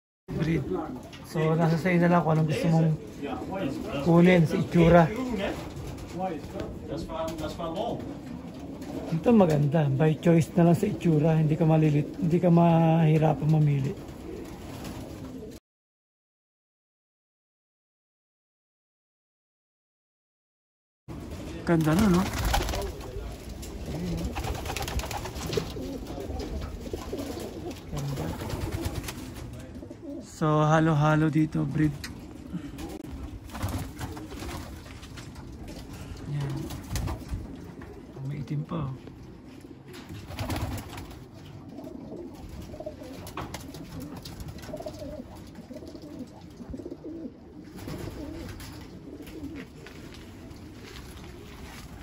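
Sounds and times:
pigeons cooing: 0.3 - 15.6, 21.9 - 30.4, 32.0 - 52.0.

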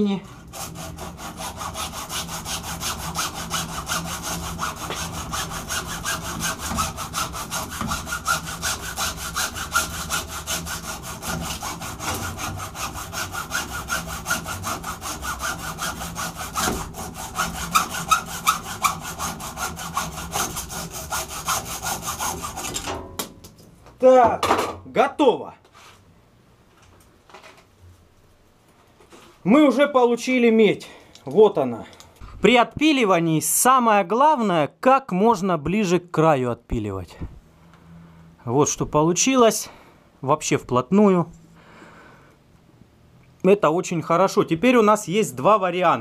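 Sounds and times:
hacksaw cutting copper: 0.3 - 23.0.

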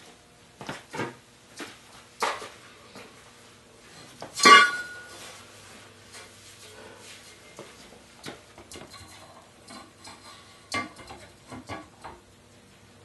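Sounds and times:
ringing metal clank: 4.4 - 5.2.

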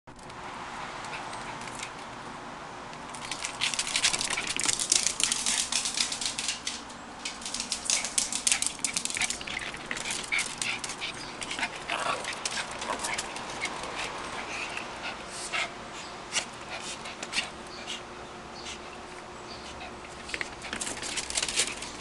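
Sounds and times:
dog claws skittering on floor: 3.1 - 14.4, 20.2 - 22.0.

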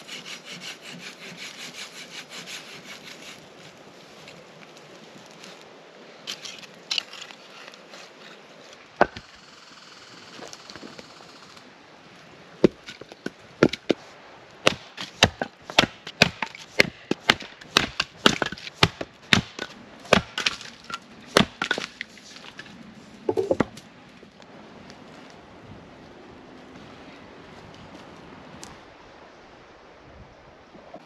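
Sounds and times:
axe chopping firewood: 9.0 - 9.2, 12.6 - 14.0, 14.6 - 22.6, 23.3 - 23.8.

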